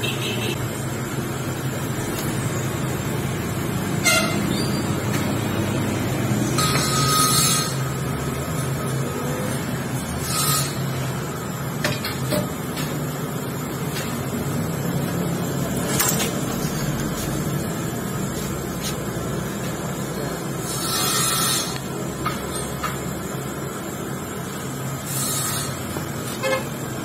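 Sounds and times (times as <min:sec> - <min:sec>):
cutting tool scraping: 0:06.6 - 0:07.8, 0:10.0 - 0:10.9, 0:20.6 - 0:21.8, 0:25.1 - 0:26.7.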